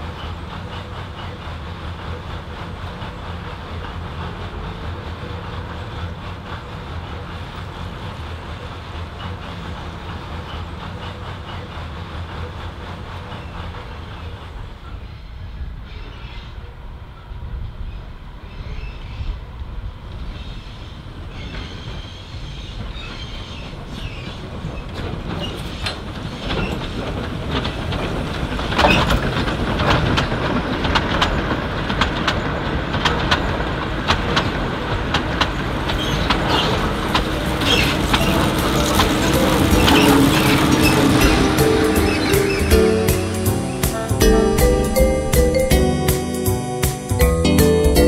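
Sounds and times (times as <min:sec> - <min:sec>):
wheels clicking over rail joints: 0:00.0 - 0:15.1, 0:20.2 - 0:48.0
wheels squealing: 0:20.3 - 0:33.8, 0:35.2 - 0:46.5.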